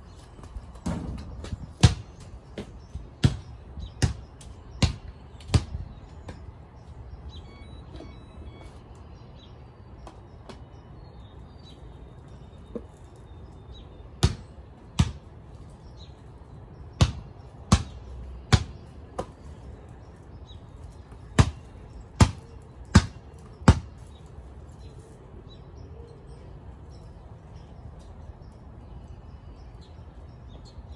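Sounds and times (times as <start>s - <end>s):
basketball bouncing on concrete: 0.3s - 6.5s, 14.2s - 15.7s, 16.9s - 19.7s, 20.8s - 24.1s.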